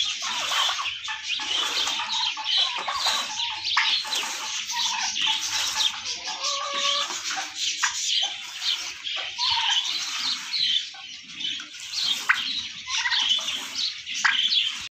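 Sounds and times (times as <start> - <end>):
birds chirping: 0.0 - 14.9
downward sweeping bird call: 0.0 - 14.9.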